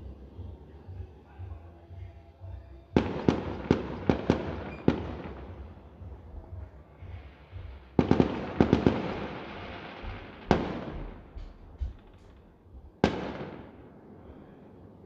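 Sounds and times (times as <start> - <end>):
fireworks bangs with rumble: 3.0 - 13.8.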